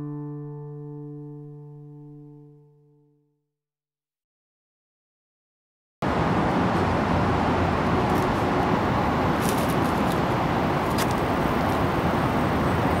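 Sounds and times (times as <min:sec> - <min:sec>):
distant traffic rumble: 0:06.0 - 0:13.0.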